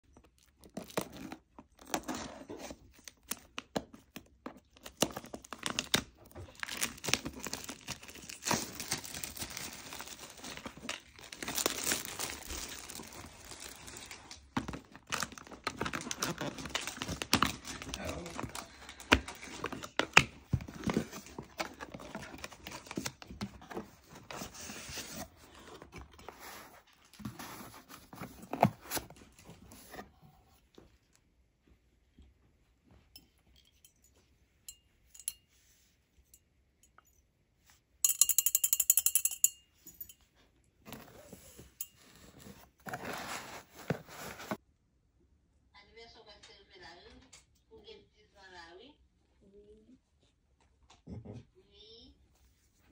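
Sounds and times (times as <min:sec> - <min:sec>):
scissors snipping plastic wrap: 0:04.8 - 0:23.8
plastic wrap crinkling: 0:04.8 - 0:25.4.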